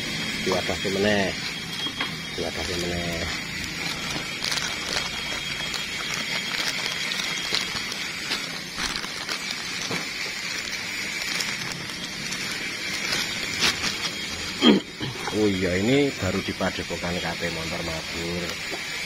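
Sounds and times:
plastic bag crinkling: 2.4s - 14.6s.

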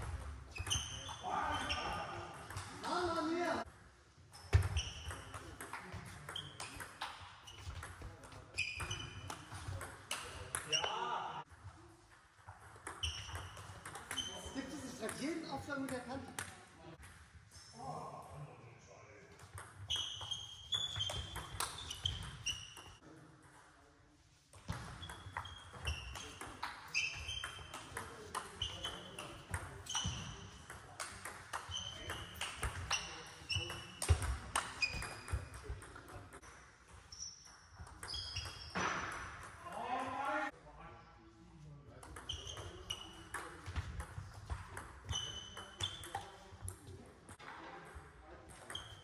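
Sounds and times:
short high squeaks: 0.5s - 2.1s, 19.9s - 23.0s, 31.6s - 35.6s, 37.1s - 39.1s
table tennis ball hits: 12.5s - 15.2s.

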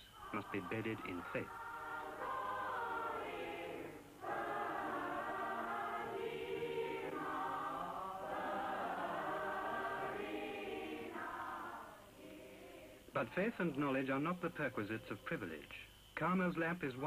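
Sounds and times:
choir singing: 0.0s - 13.5s.

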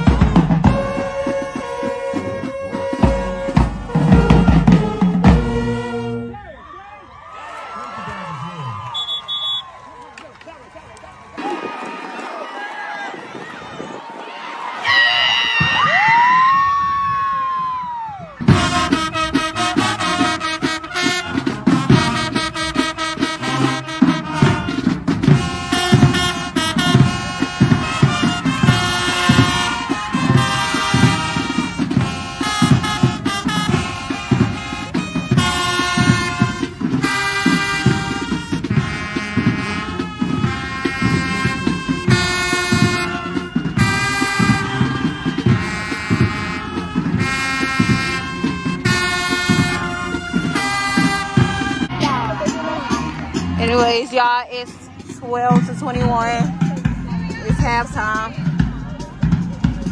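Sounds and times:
brass playing held chords: 0.0s - 6.4s, 18.5s - 52.0s.

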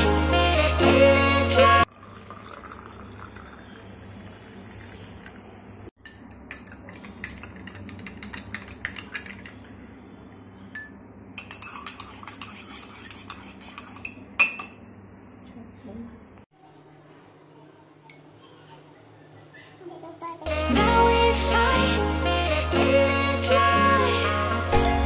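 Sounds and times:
milk pouring into glass: 1.8s - 5.4s
metal spoon clinking in glass: 10.8s - 12.6s, 13.8s - 14.8s.

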